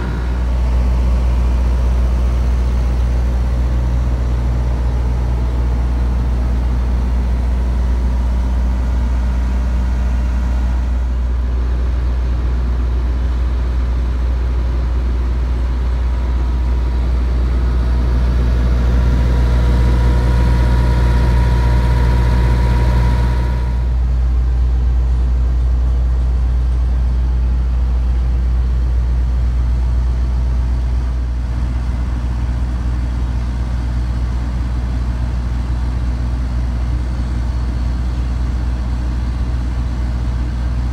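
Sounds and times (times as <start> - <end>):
high whine: 0.0 - 11.9, 15.9 - 24.7
diesel generator droning: 0.0 - 40.9.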